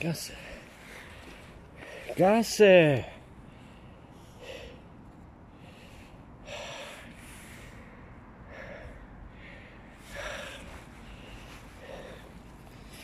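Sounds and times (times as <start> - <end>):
short breaths close to microphone: 3.4 - 13.0.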